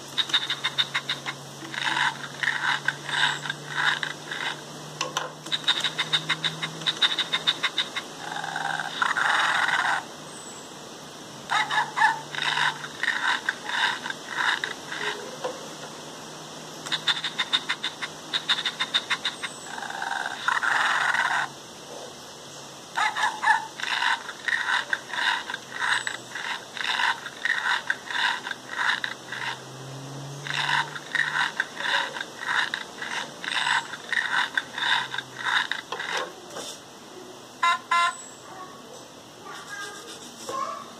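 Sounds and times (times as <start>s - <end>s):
tinny robot sound effects: 39.4s - 40.8s.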